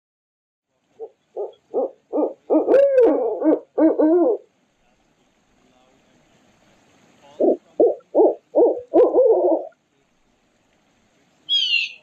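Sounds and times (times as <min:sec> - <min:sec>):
owl hooting: 0:01.0 - 0:04.5, 0:07.4 - 0:09.8, 0:11.5 - 0:12.0
high falling bird call: 0:11.5 - 0:12.0.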